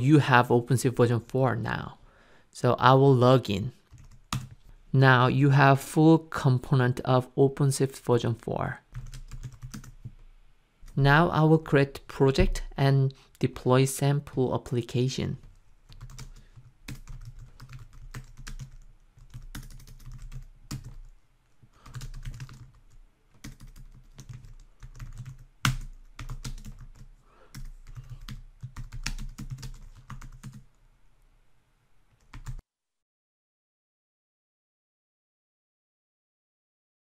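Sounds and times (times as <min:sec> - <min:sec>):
typing on a keyboard: 0:03.9 - 0:04.6, 0:09.0 - 0:10.1, 0:15.9 - 0:21.1, 0:21.8 - 0:30.6, 0:32.2 - 0:32.6.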